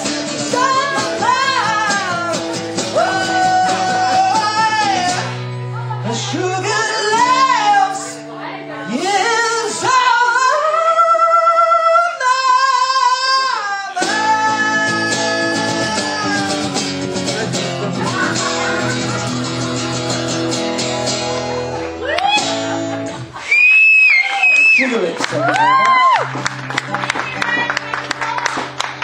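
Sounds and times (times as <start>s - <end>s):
man singing: 0.0s - 20.4s
acoustic guitar: 0.0s - 29.0s.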